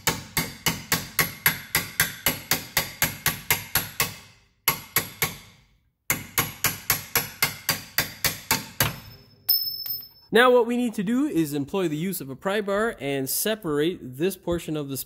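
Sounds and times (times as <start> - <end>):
hammer striking steel punch: 0.0 - 5.5, 6.1 - 10.0.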